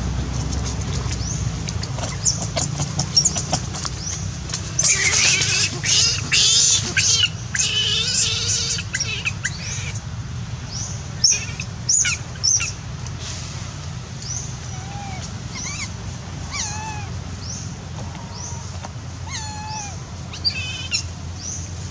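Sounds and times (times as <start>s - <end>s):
steady low rumble: 0.0s - 4.8s
baby monkey shrill distress cries: 4.8s - 10.0s, 11.2s - 12.8s, 14.6s - 17.2s, 18.3s - 21.1s.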